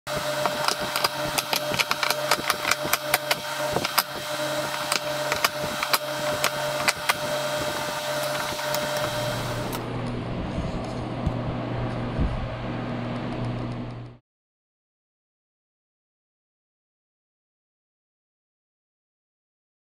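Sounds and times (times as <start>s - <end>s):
steady background hum: 0.1s - 14.2s.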